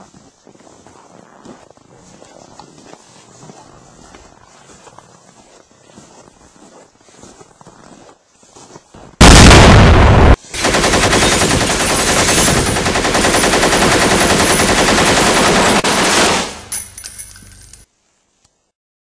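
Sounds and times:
grenade explosion: 0:09.2 - 0:13.4
automatic gunfire: 0:09.2 - 0:16.7.

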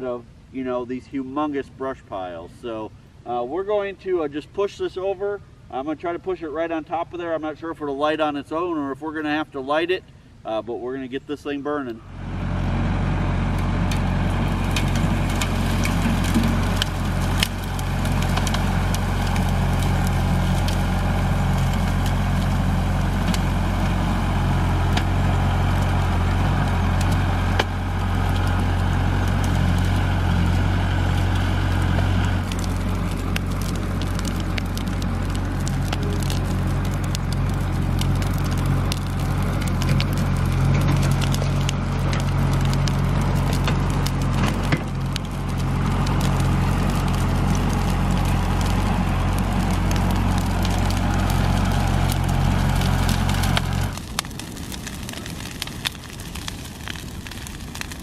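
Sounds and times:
tractor engine running: 0:12.1 - 0:58.0
dry branches snapping: 0:13.5 - 0:58.0.

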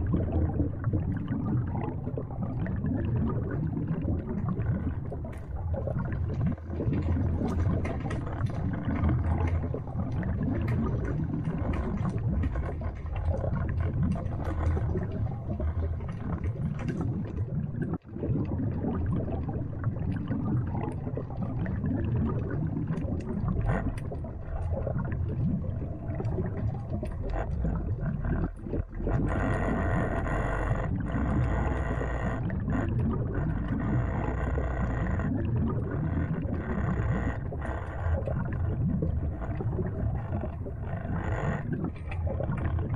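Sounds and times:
underwater rumble of moving water: 0:00.0 - 0:42.9
clicks and crackles: 0:05.1 - 0:18.0, 0:22.8 - 0:42.9.

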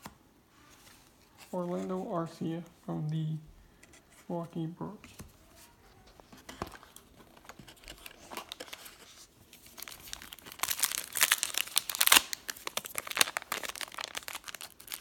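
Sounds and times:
wrapper crinkling and tearing: 0:06.4 - 0:15.0.

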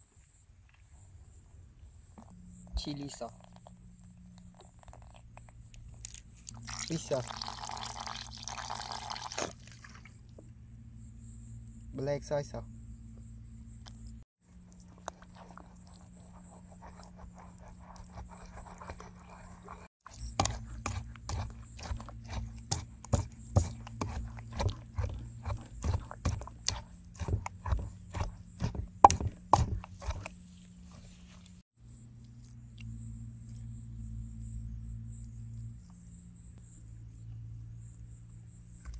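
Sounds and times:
pestle pounding in wooden mortar: 0:16.8 - 0:30.3.

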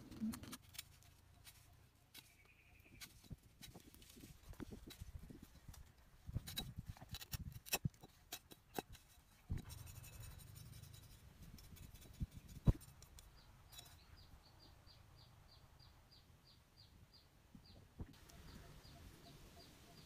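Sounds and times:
knife scraping bamboo: 0:00.0 - 0:14.0
bird chirping: 0:02.1 - 0:03.3, 0:13.2 - 0:20.0.

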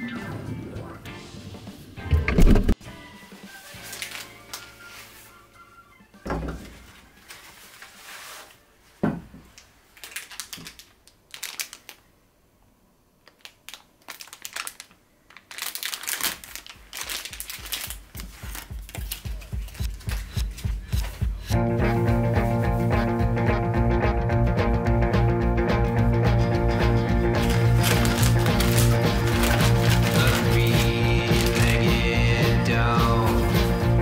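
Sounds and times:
crinkling and rustling: 0:03.5 - 0:05.4, 0:06.4 - 0:12.0, 0:13.2 - 0:21.6, 0:27.3 - 0:32.2.

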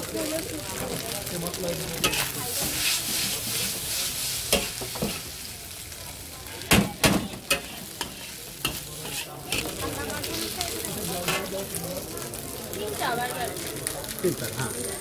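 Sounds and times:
noodles sizzling in wok: 0:00.0 - 0:15.0
metal spatula scraping wok: 0:01.9 - 0:05.5, 0:06.6 - 0:11.8.

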